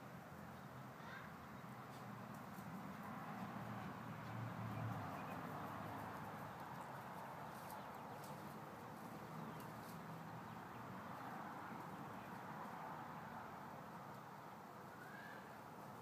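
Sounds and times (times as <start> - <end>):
soft ticks through plants: 1.9 - 3.0, 9.5 - 10.0.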